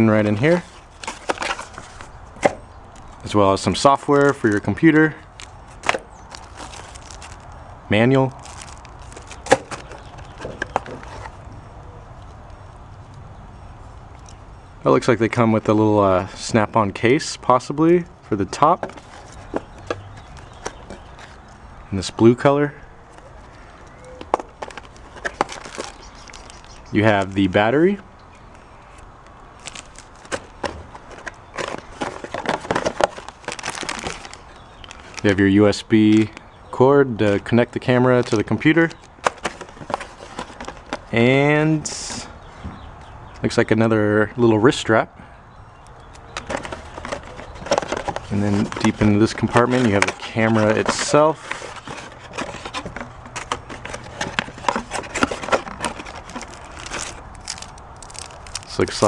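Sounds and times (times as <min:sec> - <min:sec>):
cardboard rustling: 0:00.0 - 0:11.6, 0:18.2 - 0:21.6, 0:23.1 - 0:27.8, 0:28.5 - 0:35.4, 0:38.1 - 0:41.3, 0:46.2 - 0:59.0
plastic bag crinkling: 0:04.1 - 0:11.5, 0:23.1 - 0:27.4, 0:29.5 - 0:35.4, 0:46.4 - 0:59.0.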